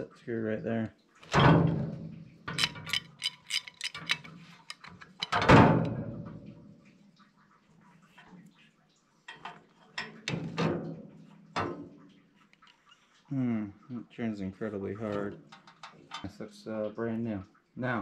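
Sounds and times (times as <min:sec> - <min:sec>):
metallic clicks and rattles: 0:02.5 - 0:06.0, 0:15.5 - 0:16.3.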